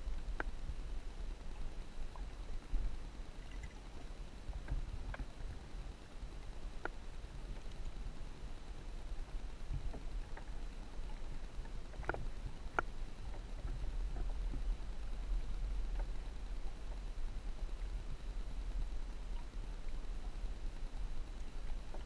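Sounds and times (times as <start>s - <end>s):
muffled underwater rumble: 0.0s - 22.0s
faint clicks: 0.1s - 0.6s, 1.4s - 5.4s, 6.4s - 8.0s, 9.1s - 18.0s.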